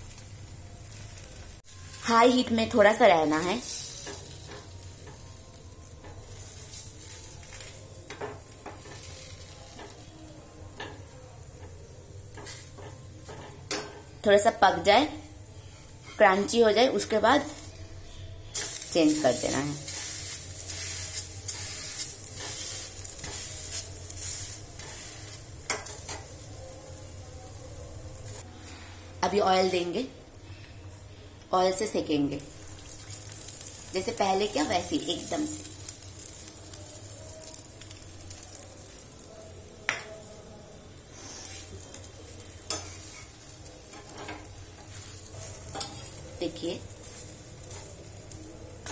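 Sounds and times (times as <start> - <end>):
flatbread sizzling in oil: 0.0 - 27.5, 31.8 - 48.9
metal spatula scraping: 17.4 - 26.5, 41.1 - 41.9, 42.6 - 48.9.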